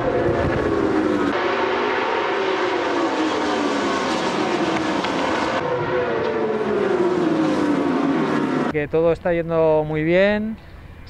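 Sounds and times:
motorcycle engines revving high: 0.0 - 8.8.

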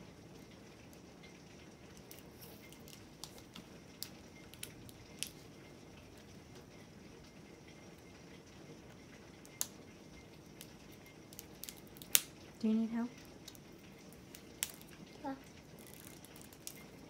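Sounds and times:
low steady hiss: 0.0 - 17.0
fingers picking at plastic wrapping: 15.8 - 17.0.

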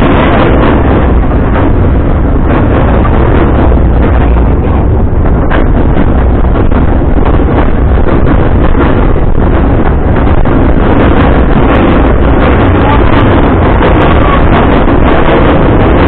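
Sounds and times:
train car rumbling on track: 0.0 - 16.0
wind buffeting microphone: 0.0 - 16.0.

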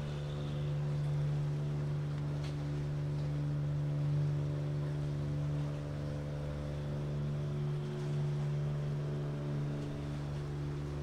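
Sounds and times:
ship engines droning: 0.0 - 11.0.

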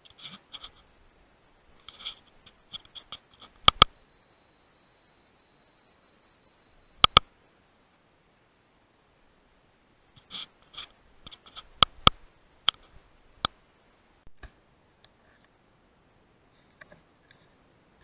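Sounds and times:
sharp clicks and light knocks: 1.8 - 4.0, 7.0 - 7.3.

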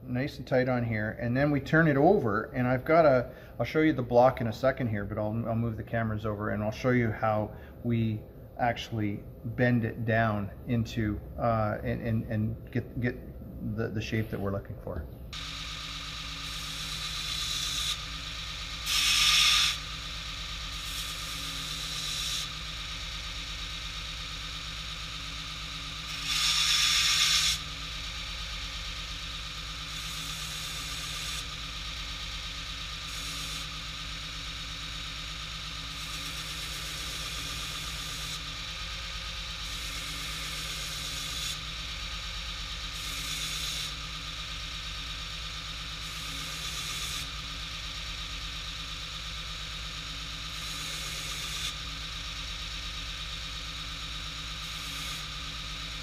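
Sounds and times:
belt grinder running: 15.4 - 56.0.

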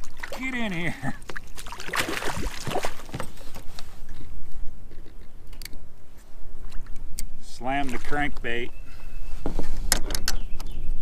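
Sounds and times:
water splashing: 0.0 - 3.5.

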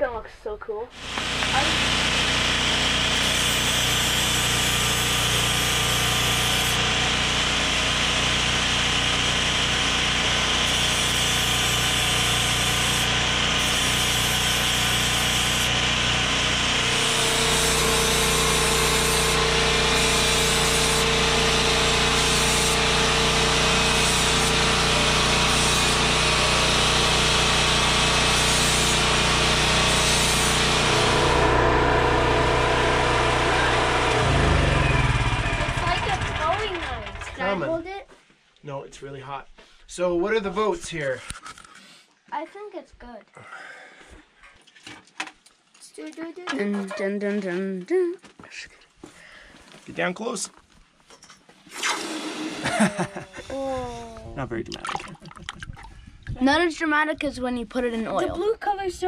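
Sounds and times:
portable generator running: 0.9 - 37.7, 51.8 - 55.5
angle grinder grinding steel: 1.0 - 37.4, 51.7 - 53.5.

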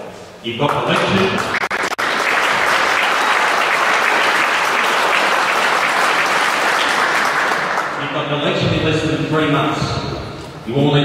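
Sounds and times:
audience applauding: 0.7 - 8.0.

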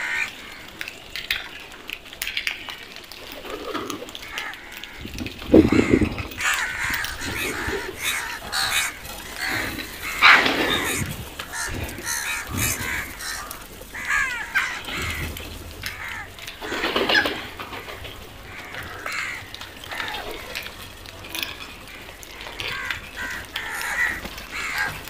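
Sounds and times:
crows cawing: 0.0 - 1.8, 3.6 - 25.0.

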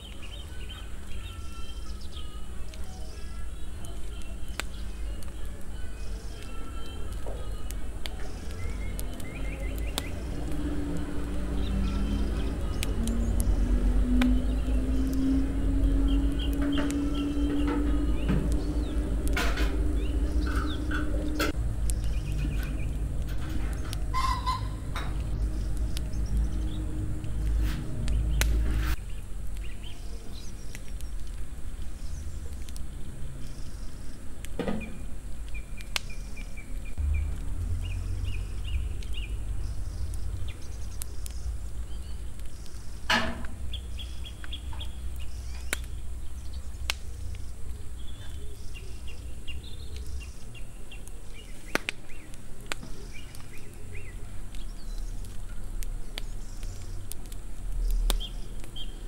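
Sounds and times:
small birds chirping: 0.0 - 59.0
steady low rumble: 7.6 - 51.5.

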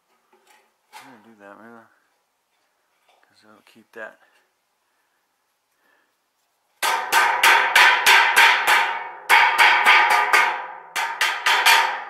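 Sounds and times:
screwdriver tapping metal roof: 6.8 - 12.0.

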